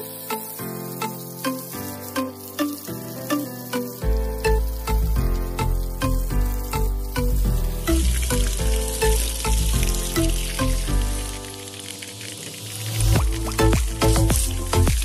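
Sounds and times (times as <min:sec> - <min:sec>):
water jet spraying on metal: 0:00.0 - 0:15.0
music with strong bass beat: 0:13.2 - 0:15.0.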